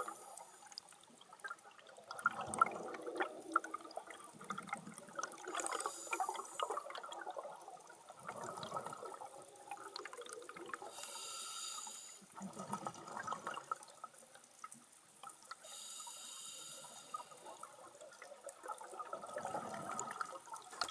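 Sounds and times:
bubbling exhaled air: 2.1 - 7.6
regulator hissing inhalations: 5.6 - 6.7, 10.9 - 12.3, 15.6 - 17.6.

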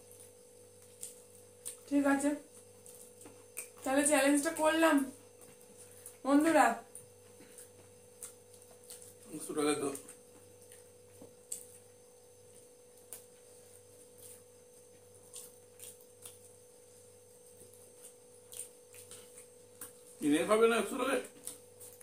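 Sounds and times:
low room hum: 0.0 - 22.0
people eating with fingers: 6.9 - 20.2.

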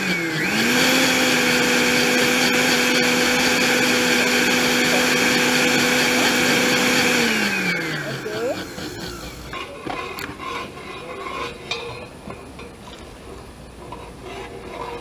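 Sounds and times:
blender motor spinning down: 0.0 - 9.6
blender motor humming: 0.0 - 10.3.

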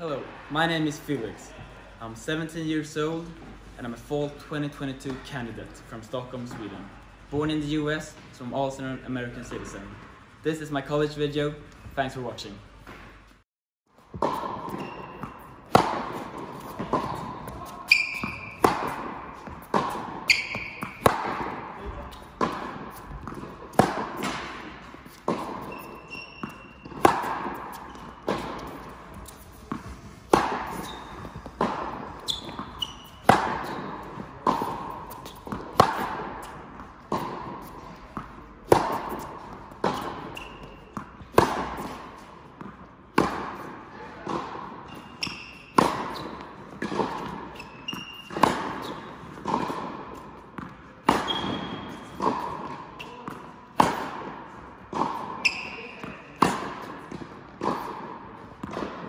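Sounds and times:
tennis balls struck by rackets: 14.1 - 59.0
shoe squeaks: 14.4 - 15.5, 16.6 - 21.1, 25.0 - 35.8, 39.0 - 42.0, 44.8 - 46.4, 47.1 - 49.2, 51.1 - 52.2, 52.9 - 53.4, 55.3 - 56.5.

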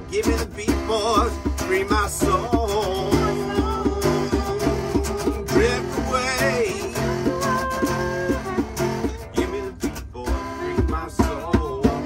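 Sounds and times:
acoustic guitar strumming: 0.0 - 12.0
hand drum beating: 0.2 - 12.0
person singing a held note: 6.8 - 9.3.

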